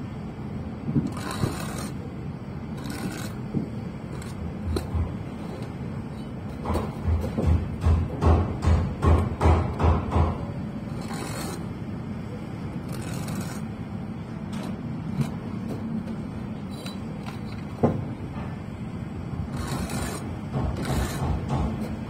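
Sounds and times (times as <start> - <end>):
steady low hum: 0.0 - 22.0
short scrapes: 12.9 - 13.7.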